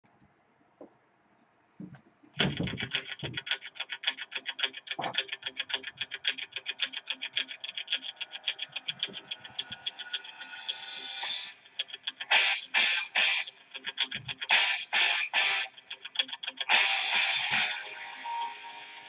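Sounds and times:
intro music with ticking beat: 2.6 - 19.0.

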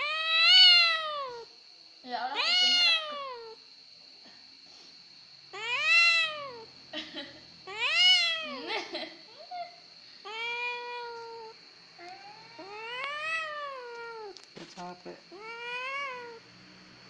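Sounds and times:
cat meowing: 0.0 - 1.5, 2.3 - 3.6, 5.5 - 6.7, 7.7 - 8.7, 10.2 - 14.4, 15.3 - 16.4.

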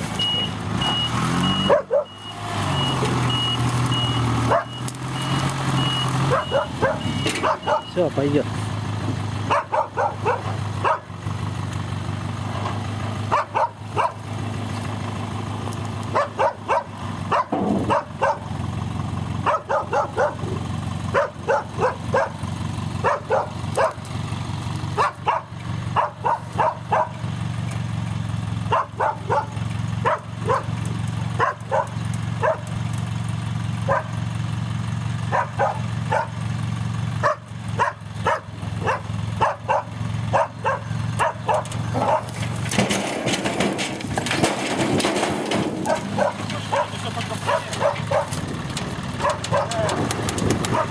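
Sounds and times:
truck engine running: 0.0 - 50.9
dog barking: 1.6 - 2.2, 4.5 - 4.8, 6.3 - 8.0, 9.5 - 11.1, 13.3 - 14.2, 16.1 - 18.5, 19.4 - 22.4, 23.0 - 24.0, 25.0 - 27.2, 28.7 - 30.8, 31.4 - 32.7, 33.8 - 34.2, 35.3 - 36.4, 37.2 - 42.4, 45.8 - 48.4, 49.2 - 49.9, 50.7 - 50.9.

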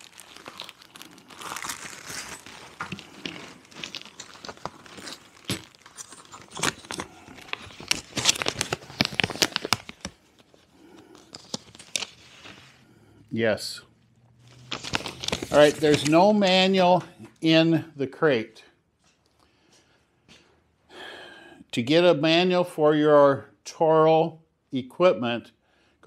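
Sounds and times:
paper rustling: 0.0 - 12.8, 14.4 - 16.8
plastic bag crinkling: 0.0 - 12.8, 14.4 - 16.8.

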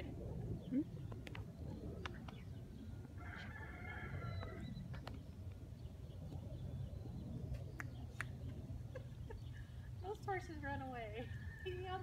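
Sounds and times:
steady low rumble: 0.0 - 12.0
rooster crowing: 3.2 - 4.7.

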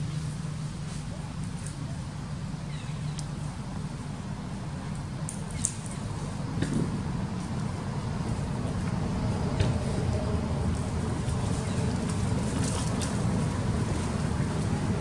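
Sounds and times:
steady low rumble: 0.0 - 15.0
faint sharp clicks: 3.1 - 3.3, 4.9 - 6.0.

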